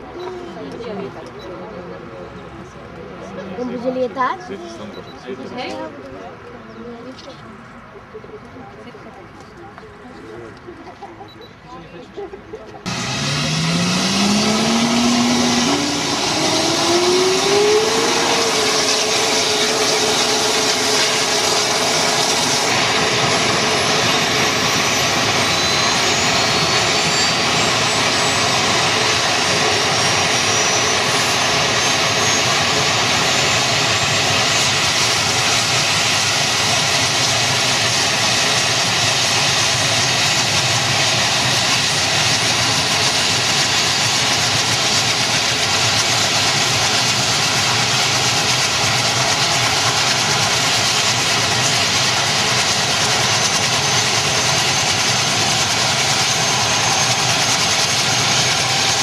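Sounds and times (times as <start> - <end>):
helicopter turbine engines spooling up: 12.3 - 59.0
rising rotor whine: 12.9 - 59.0.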